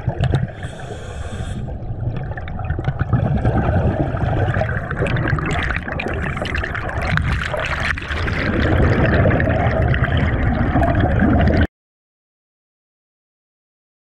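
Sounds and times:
underwater churning water and bubbles: 0:00.0 - 0:11.7.

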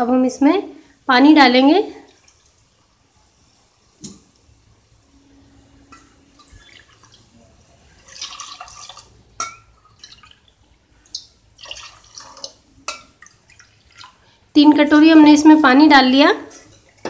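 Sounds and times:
water pouring and splashing: 0:01.9 - 0:04.4, 0:05.9 - 0:14.4.

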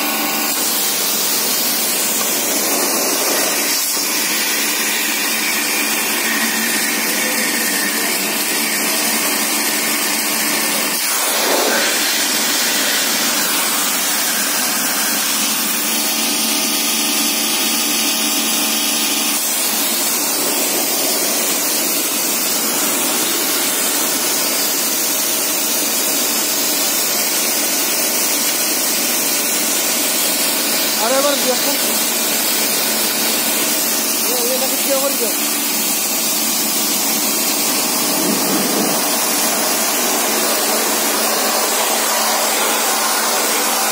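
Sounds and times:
motor and pump hum: 0:00.0 - 0:43.9
pressure washer jet hissing: 0:00.0 - 0:43.9.

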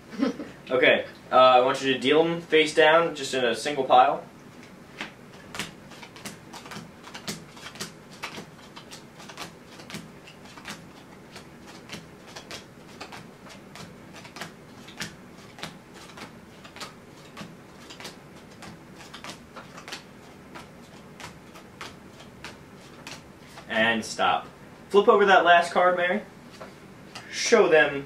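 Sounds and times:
playing cards dealt onto felt: 0:05.0 - 0:23.7.

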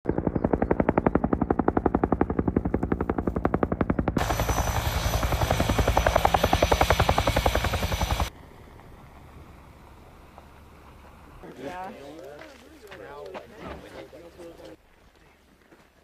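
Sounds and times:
helicopter rotor beating: 0:00.1 - 0:08.3
high steady whine: 0:04.2 - 0:08.3
rushing noise: 0:04.2 - 0:08.3.

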